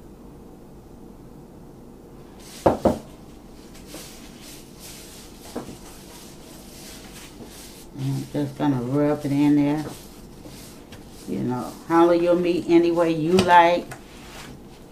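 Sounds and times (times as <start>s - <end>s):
plastic gloves rustling: 2.2s - 14.9s
hands rubbing meat: 2.4s - 13.1s.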